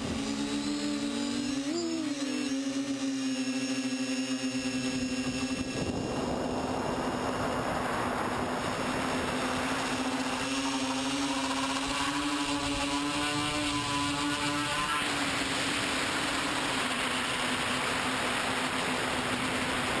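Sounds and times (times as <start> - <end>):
drone motors whining: 0.0 - 20.0
wind on microphone: 4.8 - 15.5.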